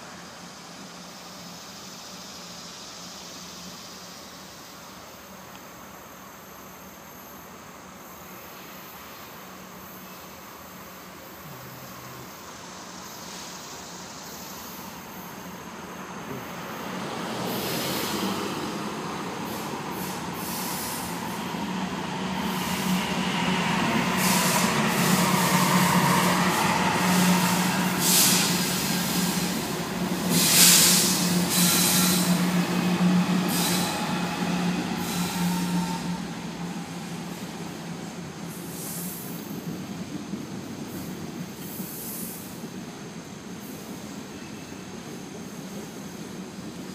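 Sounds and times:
diesel locomotive engine drone: 0:00.0 - 0:46.9
high-pitched wheel and rail noise: 0:08.5 - 0:40.1.

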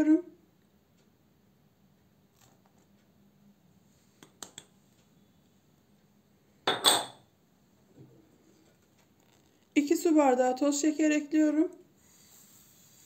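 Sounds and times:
dishes clinking: 0:06.7 - 0:07.3.

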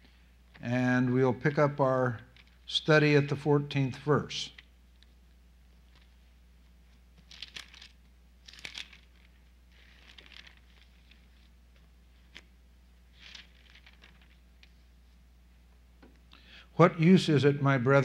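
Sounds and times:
paper rustling: 0:06.9 - 0:12.5, 0:13.1 - 0:14.8.

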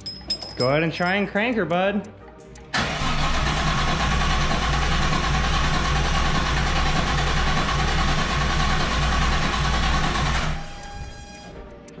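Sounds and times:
starter motor cranking: 0:02.8 - 0:11.6.

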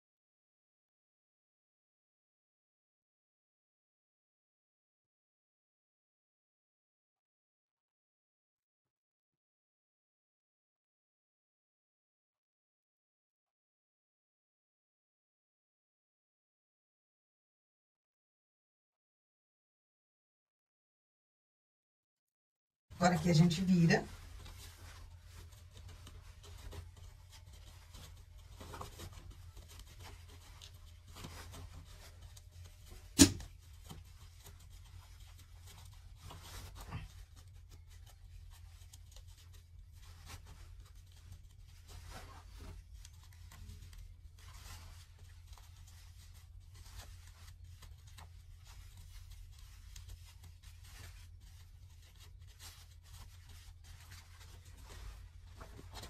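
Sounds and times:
cloth rustling and rubbing: 0:22.9 - 0:56.0
sharp click: 0:33.2 - 0:33.4.

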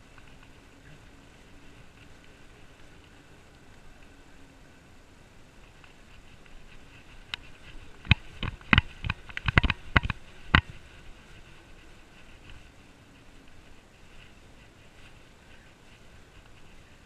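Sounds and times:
bicycle knocking and rattling: 0:05.6 - 0:17.0.

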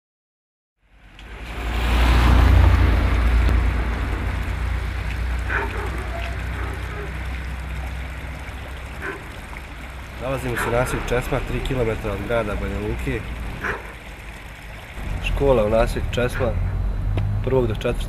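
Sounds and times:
car driving past: 0:00.8 - 0:13.9
water flowing in ditch: 0:00.8 - 0:18.0.

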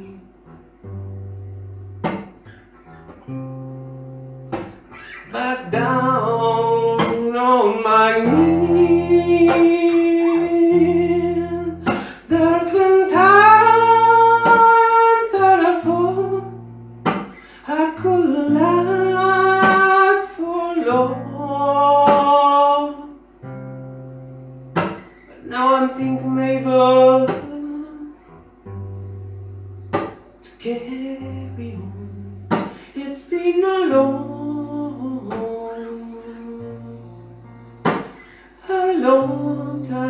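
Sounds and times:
man singing a soul ballad: 0:00.0 - 0:00.3, 0:05.2 - 0:16.6, 0:17.6 - 0:23.2, 0:25.4 - 0:28.2, 0:30.4 - 0:37.3, 0:38.6 - 0:40.0
strummed acoustic guitar: 0:00.0 - 0:40.0.

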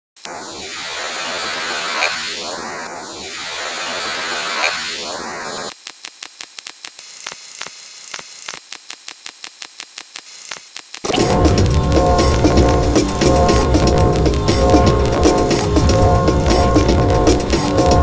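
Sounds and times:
phaser swept hiss: 0:00.2 - 0:05.7, 0:11.0 - 0:18.0
fast buzzy clicks: 0:05.6 - 0:18.0.

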